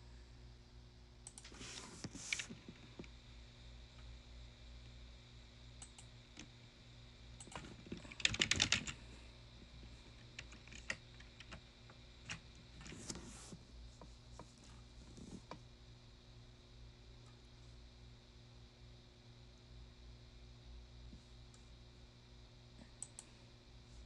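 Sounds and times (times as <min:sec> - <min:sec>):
steady low hum: 0:00.0 - 0:24.0
typing on computer keyboard: 0:07.4 - 0:09.0, 0:10.3 - 0:11.6.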